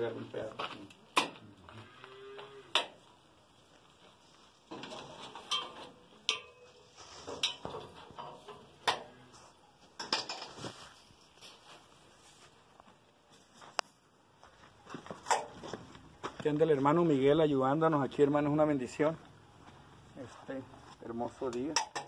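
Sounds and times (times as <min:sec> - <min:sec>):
metallic clinks and scraping of wire: 0:04.7 - 0:11.6.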